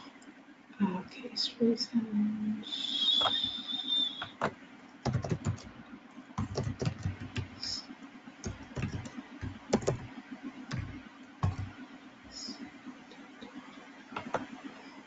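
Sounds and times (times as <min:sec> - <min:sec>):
computer keyboard typing: 0:04.2 - 0:05.8, 0:06.4 - 0:07.8, 0:08.4 - 0:10.1, 0:10.7 - 0:11.8, 0:14.1 - 0:14.6.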